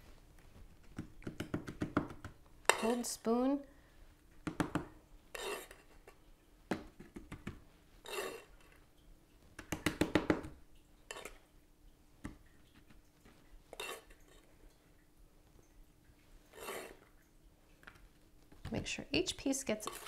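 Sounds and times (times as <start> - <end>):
metal spoon scraping saucepan: 5.3 - 6.2, 8.0 - 8.7, 11.1 - 11.4, 13.7 - 14.4, 16.5 - 17.0, 19.7 - 20.0.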